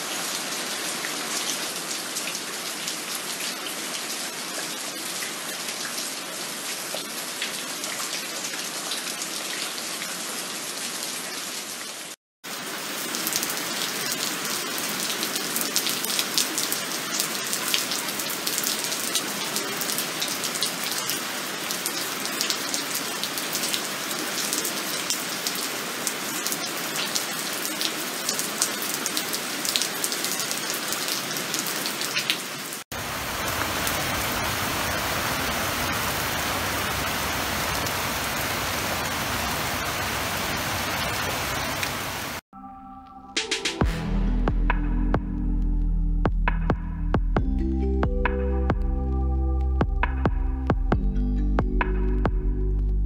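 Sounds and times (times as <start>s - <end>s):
heavy rain falling: 0.0s - 42.4s.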